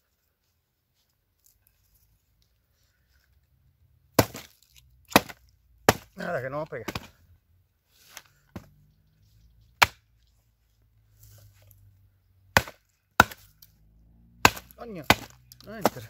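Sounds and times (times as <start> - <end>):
axe chopping wood: 4.2 - 7.2, 9.8 - 10.1, 12.5 - 13.7, 14.4 - 16.0.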